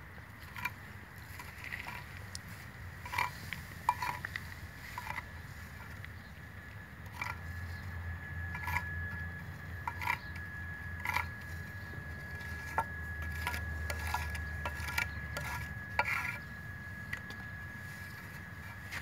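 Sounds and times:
putty knife scraping on stone tile: 8.5 - 9.2, 9.9 - 11.5, 12.3 - 16.5.

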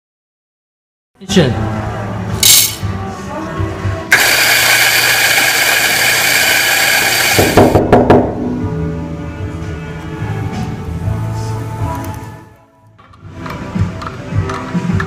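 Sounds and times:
electric coffee grinder running: 4.1 - 7.7.

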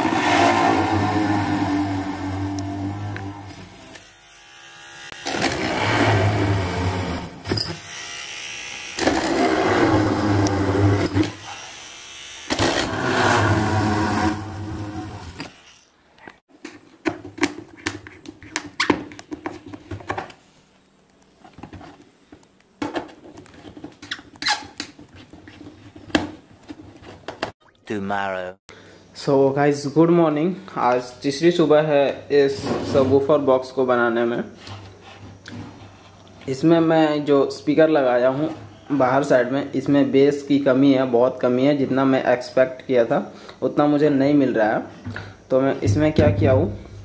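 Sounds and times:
small motor drilling: 1.1 - 16.0.

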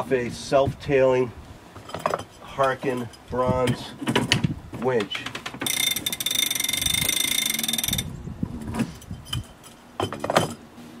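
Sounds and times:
winch ratcheting: 5.0 - 8.1.

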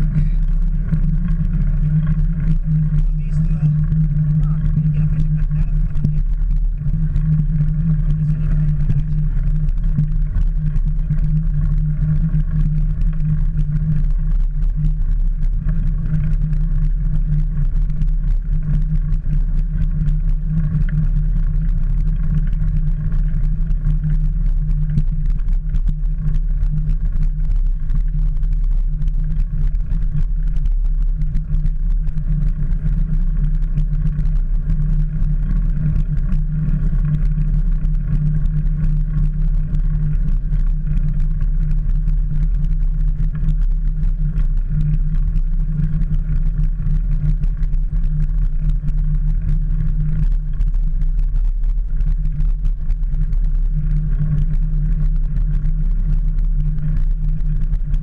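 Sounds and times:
wind and vibration rumble: 0.0 - 58.0.

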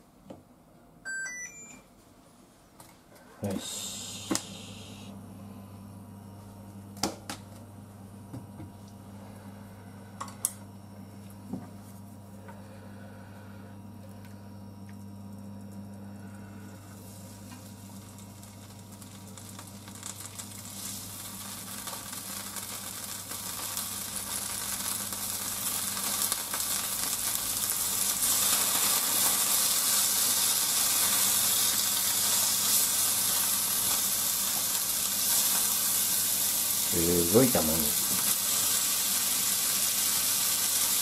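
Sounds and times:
meat sizzling in a frying pan: 16.9 - 41.0.

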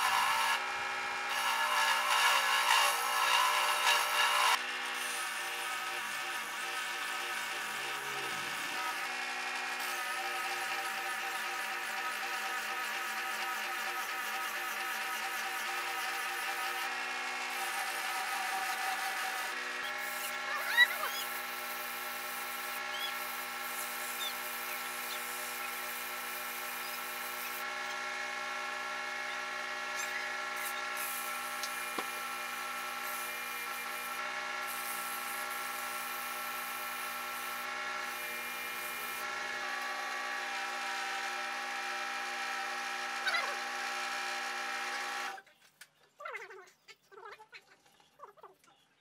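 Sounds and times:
lathe motor whining: 0.0 - 12.2
sanding pad hissing on wood: 17.6 - 27.6, 30.0 - 32.2.

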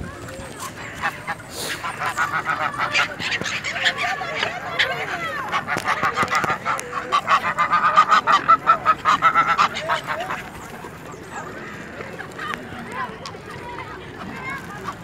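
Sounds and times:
geese honking: 0.6 - 12.0.

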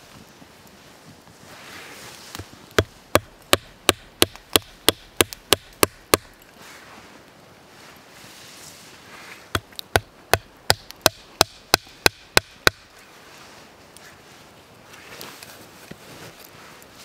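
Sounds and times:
hatchet chopping wood: 2.4 - 6.4, 9.5 - 12.9.

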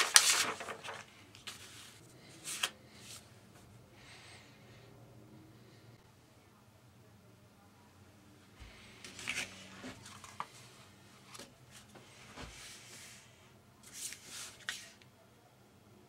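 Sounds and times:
card rustling and scraping on mat: 9.0 - 10.6.

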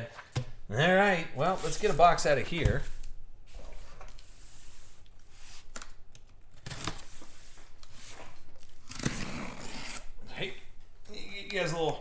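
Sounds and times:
box cutter slicing packing tape: 8.7 - 10.1.

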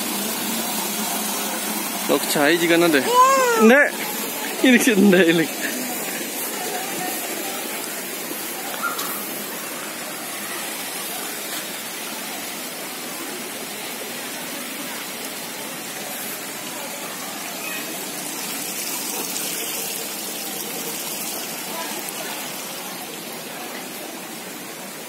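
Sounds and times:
fountain water splashing: 0.0 - 25.0.

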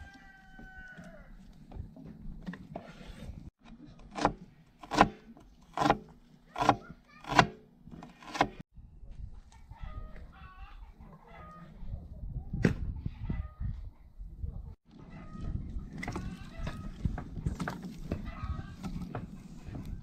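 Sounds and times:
cleaver chopping on wooden board: 4.1 - 8.6.

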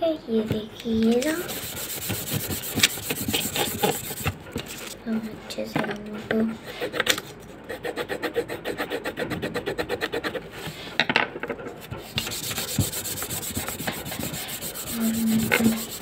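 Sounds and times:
pencil scribbling on paper: 1.4 - 4.4, 7.7 - 10.5, 12.0 - 16.0.

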